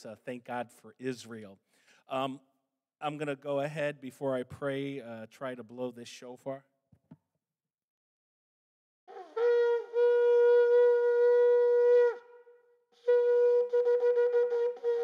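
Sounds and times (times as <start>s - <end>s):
shofar blowing: 9.1s - 15.0s.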